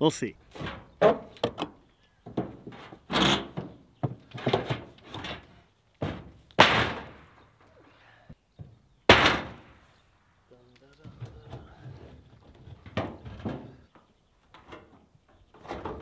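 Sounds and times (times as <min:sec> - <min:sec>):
wood knocks and thuds: 0:00.5 - 0:07.6, 0:08.6 - 0:09.8, 0:11.0 - 0:16.0
heavy bangs: 0:06.0 - 0:07.6, 0:09.0 - 0:09.9.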